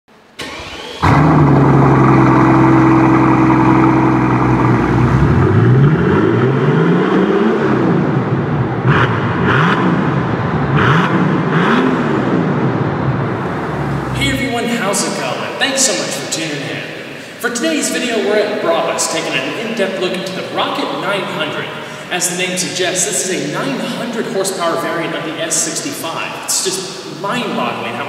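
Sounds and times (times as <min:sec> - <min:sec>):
car engine starting and revving: 0:00.3 - 0:15.5.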